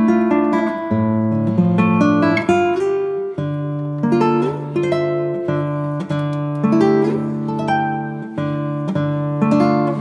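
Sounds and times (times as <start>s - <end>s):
plucked-string instrumental music: 0.0s - 10.0s.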